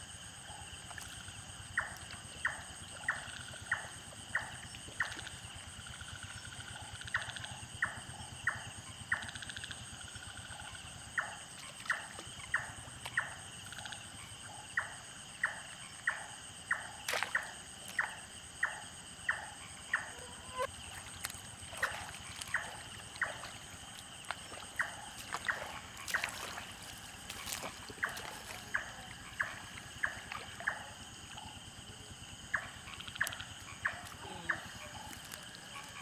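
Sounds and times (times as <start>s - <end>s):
high-pitched insect hum: 0.0s - 36.0s
night animal short sharp calls: 33.2s - 36.0s.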